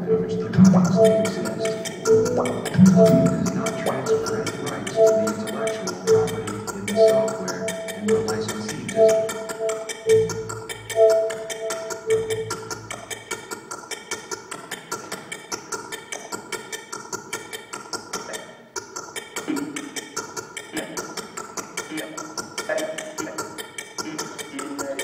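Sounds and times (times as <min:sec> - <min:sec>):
short electronic tones: 0:00.0 - 0:13.2
fast glitchy clicks: 0:00.6 - 0:25.0.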